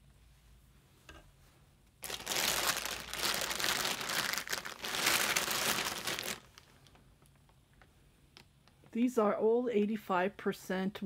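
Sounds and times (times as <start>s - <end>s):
plastic bag crinkling: 2.0s - 7.2s.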